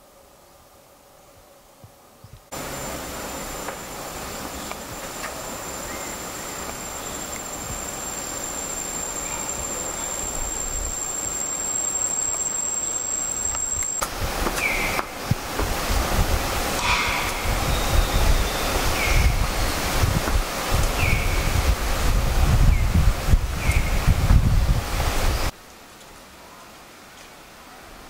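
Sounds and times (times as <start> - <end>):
rushing background noise: 2.5 - 25.5
high-pitched insect call: 2.6 - 15.2, 16.6 - 21.8.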